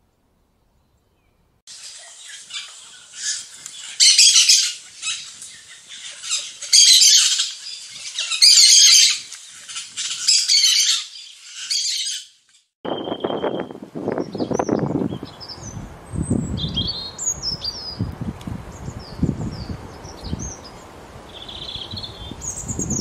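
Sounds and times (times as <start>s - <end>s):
songbird chattering song: 0.8s - 12.2s, 12.9s - 18.1s, 18.7s - 23.0s
thin whistle: 12.9s - 13.8s.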